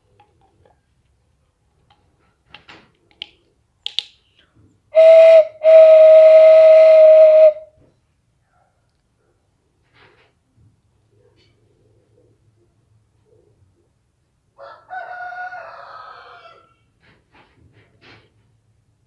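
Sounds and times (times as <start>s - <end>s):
light wooden clicks: 0.0s - 4.7s
whistle blown: 5.0s - 7.7s.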